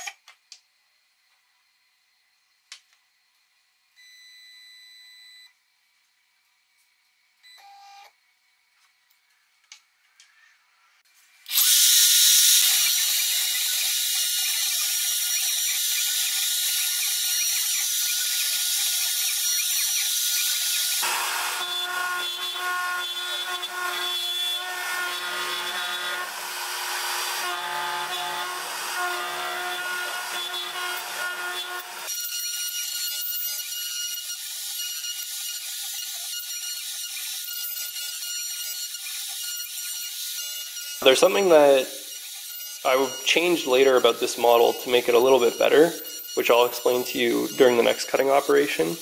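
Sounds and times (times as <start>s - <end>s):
router spindle milling wood: 11.5s - 32.1s, 41.0s - 49.0s.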